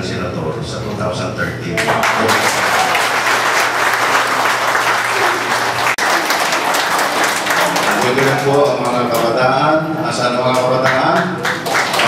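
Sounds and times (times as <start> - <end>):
audience applauding: 1.8 - 9.3, 10.5 - 12.0.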